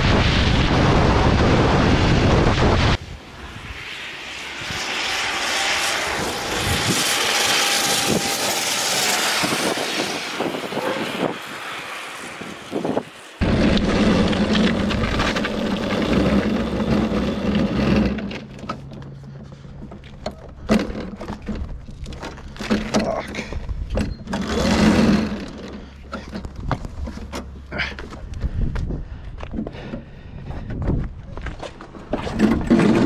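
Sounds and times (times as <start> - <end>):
wind buffeting: 0.0 - 18.3, 28.2 - 32.7
electric motor whine: 3.4 - 18.6
tyre rumble on asphalt: 13.4 - 18.7.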